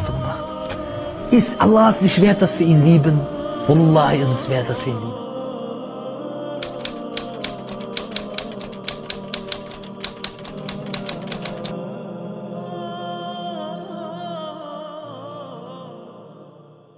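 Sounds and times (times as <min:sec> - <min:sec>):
typewriter key clicks: 0:06.6 - 0:11.8.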